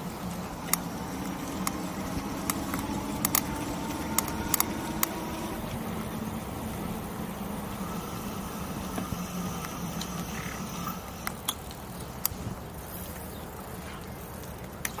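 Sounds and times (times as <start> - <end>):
bike tyres rolling: 0.0 - 15.0
low motor hum: 0.0 - 15.0
sharp clicks and knocks: 0.6 - 5.8.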